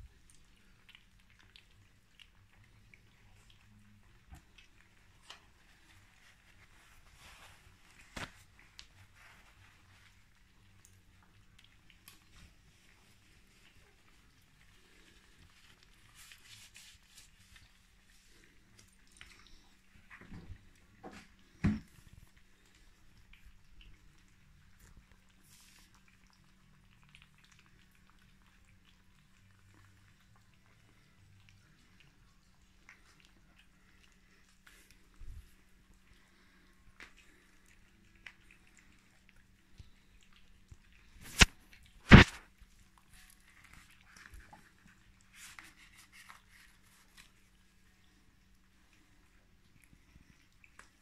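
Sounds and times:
puppies crunching dry kibble: 0:00.0 - 0:51.0.

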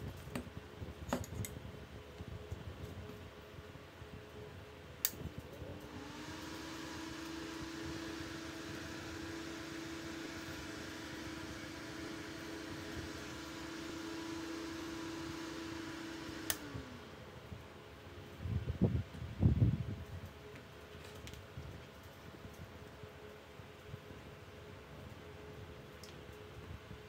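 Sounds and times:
fan humming: 0:00.0 - 0:27.0
fan switch click: 0:16.4 - 0:16.7.

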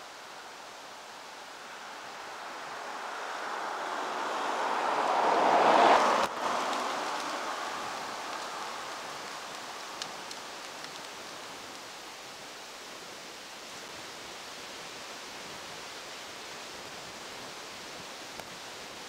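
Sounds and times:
vehicle tyre noise passing: 0:00.8 - 0:11.8
faint clicks: 0:09.2 - 0:11.8.

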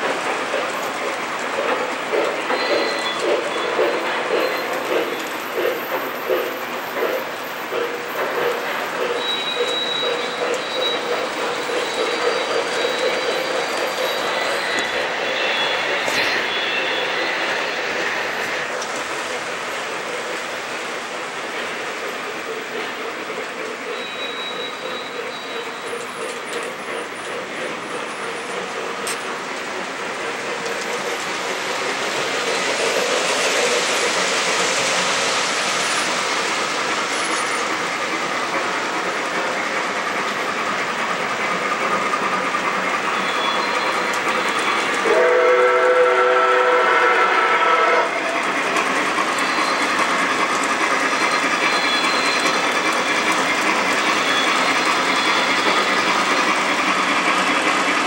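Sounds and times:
model train wheels rumbling: 0:00.0 - 0:58.0
steam whistle blast: 0:45.0 - 0:48.2.

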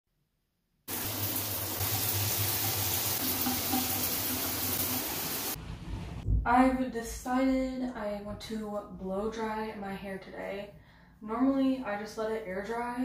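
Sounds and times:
water running: 0:00.9 - 0:06.2.

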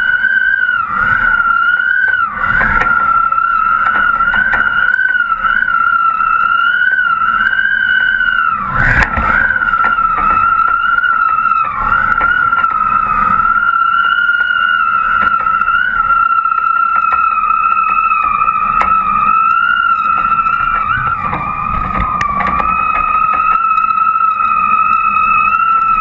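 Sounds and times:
high-pitched kite whistle: 0:00.0 - 0:26.0
low wind rumble: 0:00.0 - 0:26.0.

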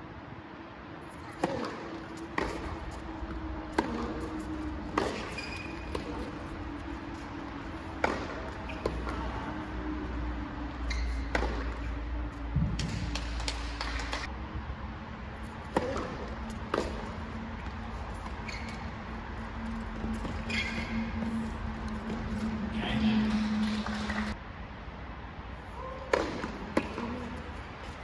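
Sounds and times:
tennis balls struck by rackets: 0:01.0 - 0:09.7, 0:10.8 - 0:14.3, 0:15.4 - 0:18.4, 0:25.9 - 0:28.0.

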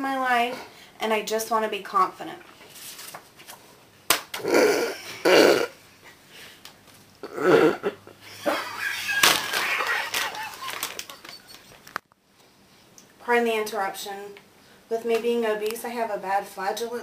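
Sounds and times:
person farting: 0:04.3 - 0:05.8, 0:07.2 - 0:08.0
woman laughing: 0:07.8 - 0:11.6.

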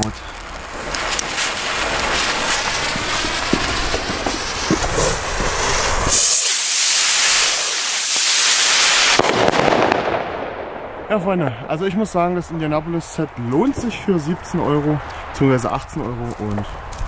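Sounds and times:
firework fuses hissing and crackling: 0:00.0 - 0:10.2
rockets launching with rushing hiss: 0:00.0 - 0:12.8.

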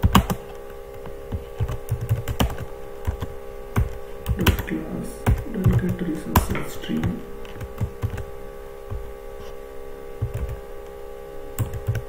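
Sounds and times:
computer keyboard typing: 0:00.0 - 0:08.3, 0:10.2 - 0:10.6, 0:11.6 - 0:12.0
low hum: 0:00.0 - 0:12.0.

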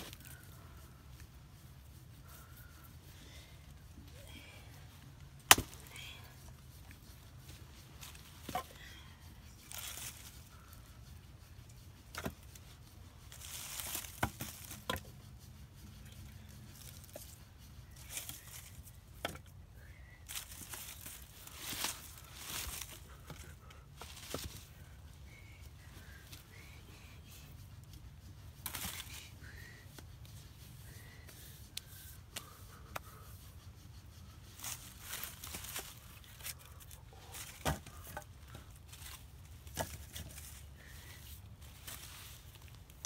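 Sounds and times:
dry leaves shuffling: 0:05.6 - 0:11.2, 0:12.4 - 0:19.0, 0:20.2 - 0:26.5, 0:28.6 - 0:29.4, 0:34.4 - 0:43.0.

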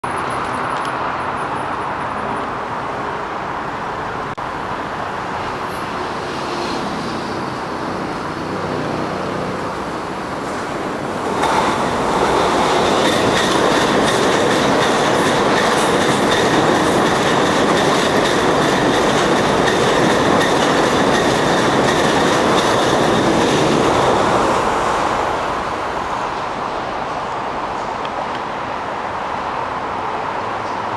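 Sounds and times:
train rumbling past: 0:00.0 - 0:30.9
wheels clicking over rail joints: 0:10.4 - 0:23.9.

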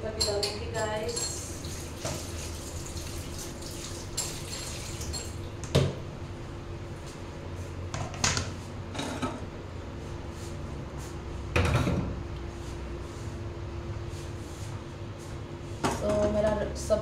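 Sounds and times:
steady low hum: 0:00.0 - 0:17.0
kitchen utensils clinking: 0:00.2 - 0:02.3, 0:03.9 - 0:05.4.

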